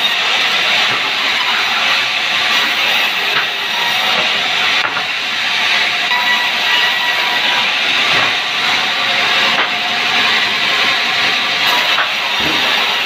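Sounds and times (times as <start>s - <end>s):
bandsaw cutting wood: 12.0s - 13.0s.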